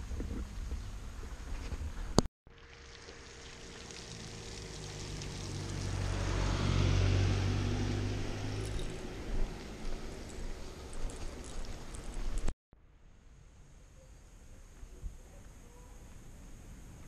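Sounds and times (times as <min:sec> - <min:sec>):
vehicle passing by: 0:03.0 - 0:12.5.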